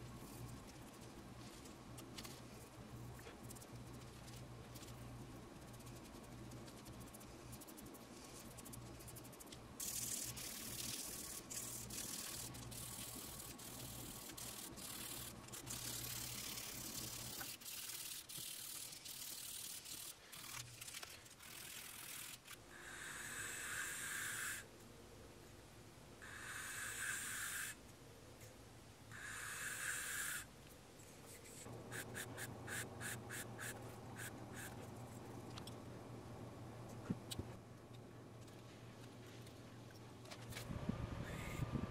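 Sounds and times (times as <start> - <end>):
light rubbing and handling noise: 0.0 - 22.6
mouthpiece sanding on sandpaper: 5.6 - 22.5, 31.4 - 34.8.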